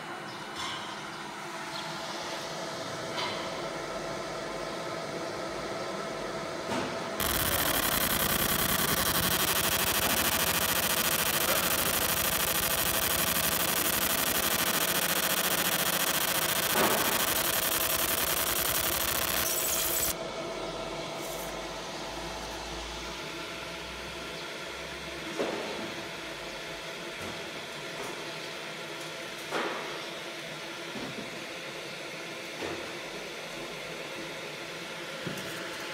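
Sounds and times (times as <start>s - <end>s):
laser buzzing hiss: 7.2s - 20.2s
machine hum: 7.2s - 20.2s.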